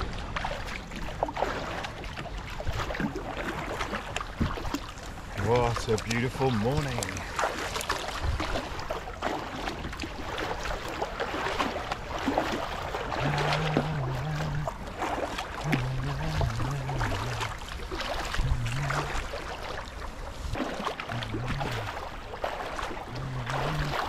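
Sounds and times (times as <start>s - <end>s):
paddle splashing in water: 0.0s - 24.0s
water lapping at hull: 0.0s - 24.0s
low wavering hum: 13.0s - 24.0s.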